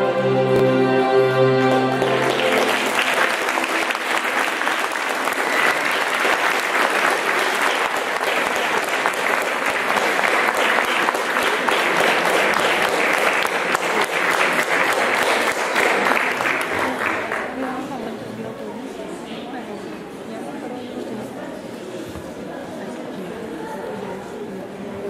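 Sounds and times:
music chord: 0.0 - 5.2
audience applauding: 1.6 - 17.6.

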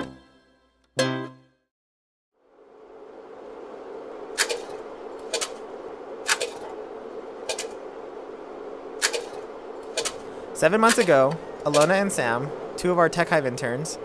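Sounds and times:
steady room hum: 2.4 - 14.0
sharp clicks: 4.4 - 5.6, 6.2 - 6.7, 7.4 - 7.8, 9.0 - 12.0.

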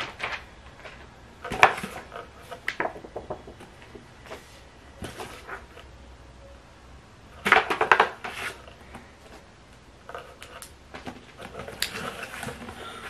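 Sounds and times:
cardboard and paper rustling: 0.0 - 3.0, 4.2 - 5.8, 7.4 - 9.5, 10.1 - 13.0.

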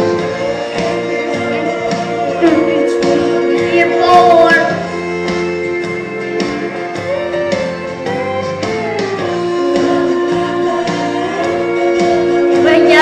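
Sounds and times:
boy singing into microphone: 0.0 - 4.9, 9.4 - 13.0
backing music: 0.0 - 13.0.

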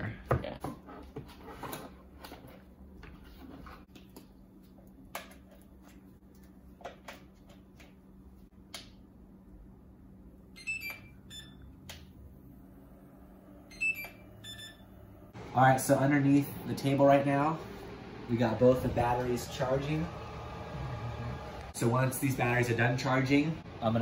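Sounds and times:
charger electronic beeps: 13.7 - 15.2.

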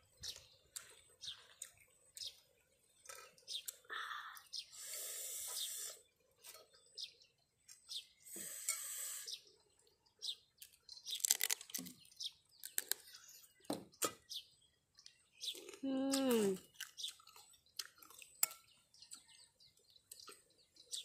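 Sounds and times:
sucking and slurping: 4.6 - 6.6, 8.2 - 9.5
shells crunching: 11.0 - 12.0, 12.6 - 13.0.

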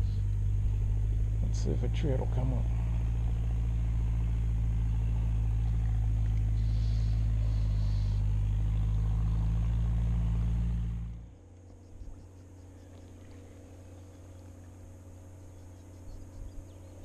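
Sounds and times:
faint high hiss: 0.0 - 10.6.

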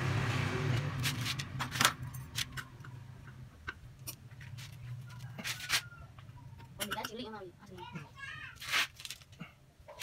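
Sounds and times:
soil and roots scratching: 4.4 - 6.0, 8.5 - 10.0.

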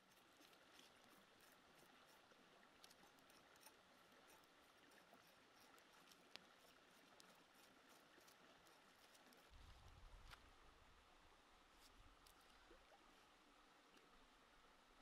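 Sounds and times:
knife scraping scales: 0.0 - 9.5
soft steady hiss: 0.0 - 15.0.

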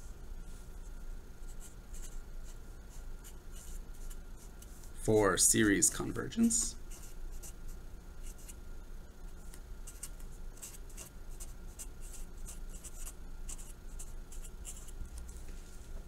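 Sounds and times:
felt-tip marker writing on paper: 9.8 - 15.0.

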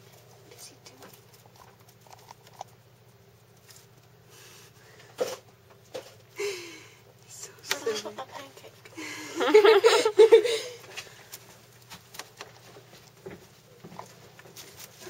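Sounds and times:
pet scratching in bedding: 11.5 - 15.0.

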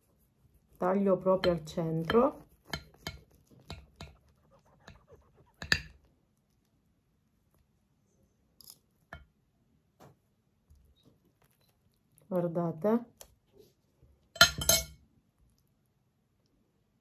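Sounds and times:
knife and fork cutting meat: 1.1 - 6.0.

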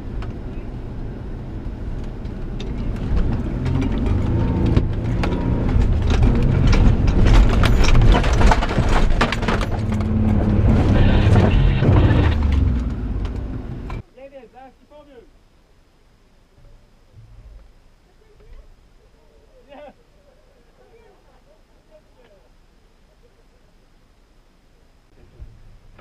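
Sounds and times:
engine working hard under load: 1.4 - 14.0
suspension knocks and rattles: 2.0 - 14.0.

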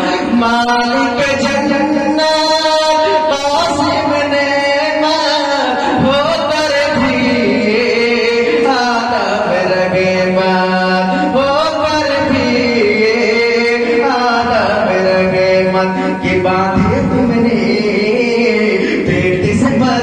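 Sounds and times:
man chanting devotional song: 0.0 - 20.0.

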